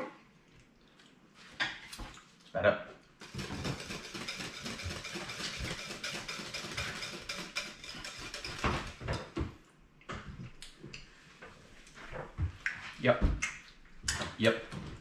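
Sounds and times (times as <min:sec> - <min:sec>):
whisk clattering against a bowl: 0:03.2 - 0:09.4
whisk knocking on a bowl: 0:03.2 - 0:09.4.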